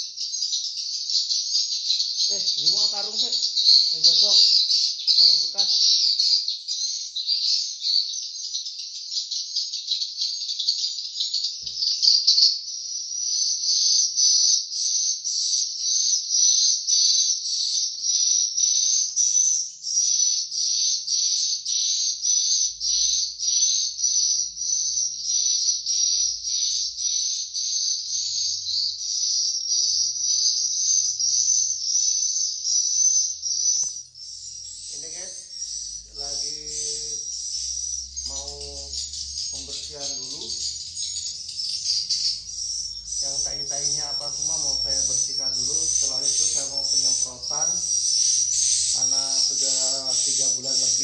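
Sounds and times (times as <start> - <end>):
swiftlets twittering: 2.2 - 4.5, 22.0 - 51.0.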